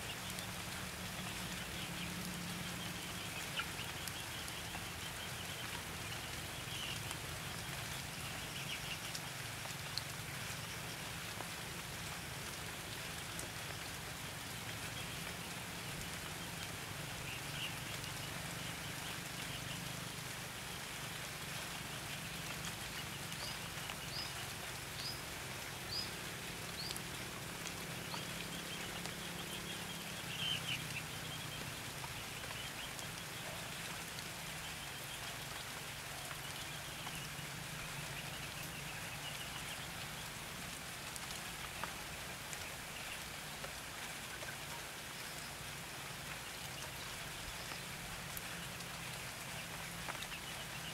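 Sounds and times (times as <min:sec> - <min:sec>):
steady rain falling: 0:00.0 - 0:50.9
birds singing and calling: 0:27.7 - 0:33.5.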